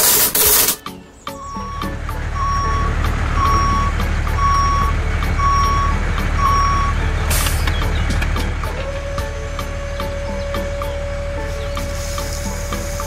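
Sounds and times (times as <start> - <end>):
short hiss: 0.0 - 1.0, 7.3 - 7.8, 11.8 - 13.0
low engine rumble: 0.8 - 13.0
truck reversing alarm beeps: 1.3 - 13.0.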